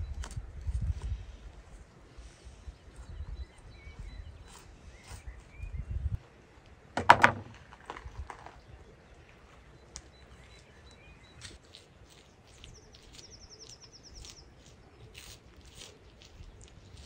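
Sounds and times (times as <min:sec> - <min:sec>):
faint bird chirps: 0:02.4 - 0:06.1, 0:08.5 - 0:15.4
sharp knocks or crunches: 0:07.0 - 0:08.6.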